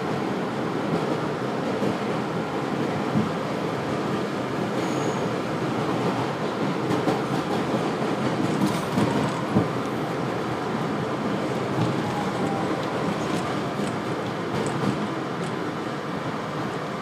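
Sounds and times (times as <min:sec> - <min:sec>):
subway car wheels rumbling: 0:00.0 - 0:17.0
wheels clicking over rails: 0:06.0 - 0:16.9.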